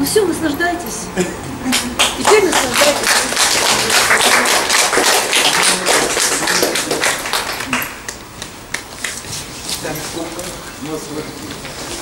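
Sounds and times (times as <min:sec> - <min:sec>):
audience applauding: 0:01.7 - 0:09.2.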